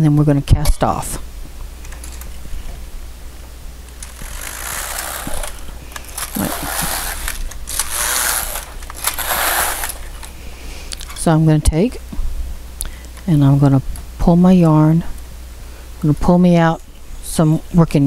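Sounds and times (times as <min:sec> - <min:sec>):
knitting machine carriage sliding: 0:04.0 - 0:10.2.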